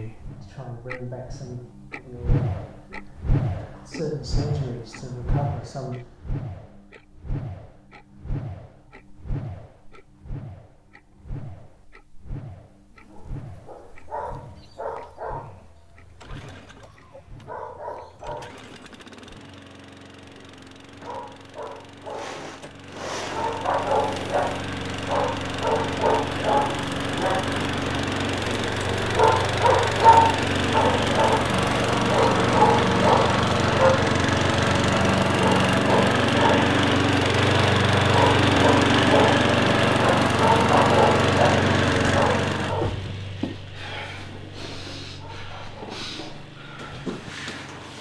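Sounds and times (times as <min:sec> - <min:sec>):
lawn mower engine running: 0:00.0 - 0:10.2, 0:12.7 - 0:48.0
dog barking: 0:13.0 - 0:15.7, 0:17.2 - 0:18.5, 0:21.0 - 0:27.7, 0:28.8 - 0:34.1, 0:35.4 - 0:36.9, 0:37.9 - 0:43.0.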